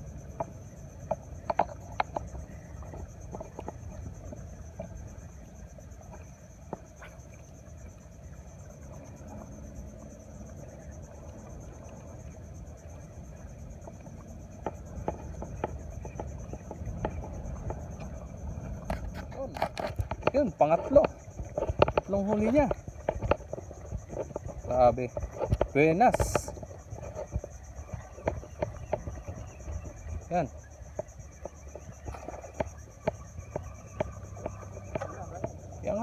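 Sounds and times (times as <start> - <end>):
insects chirring: 0.0 - 36.0
wind rumble on microphone: 0.0 - 36.0.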